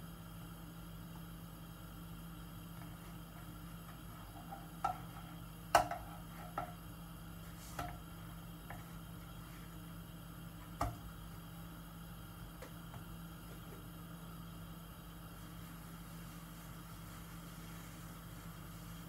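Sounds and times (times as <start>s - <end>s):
spatula knocking on frying pan: 4.8s - 6.8s.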